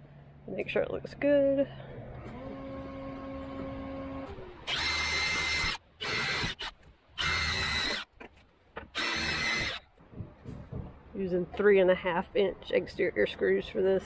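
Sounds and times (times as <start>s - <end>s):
cordless drill driving screws: 2.2s - 8.1s, 8.8s - 9.8s.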